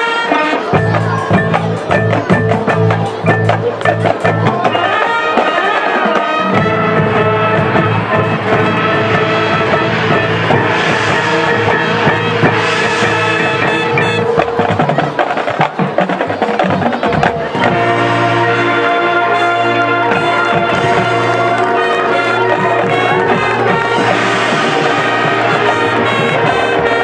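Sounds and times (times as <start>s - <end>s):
marching band brass chords: 0.0s - 27.0s
drum and percussion hits: 0.6s - 18.5s, 19.3s - 27.0s.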